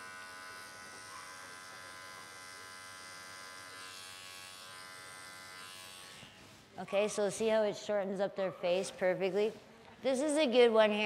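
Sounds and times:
electric clipper humming: 0.0 - 6.7.

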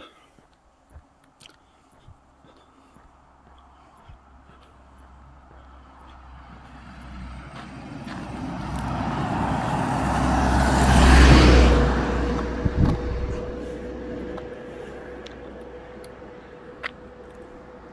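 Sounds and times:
truck driving past: 4.4 - 17.9.

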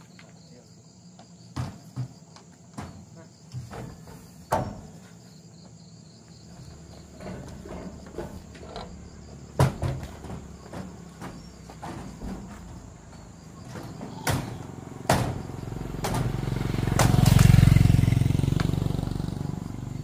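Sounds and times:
knocks and thuds: 1.5 - 5.0, 7.0 - 17.4.

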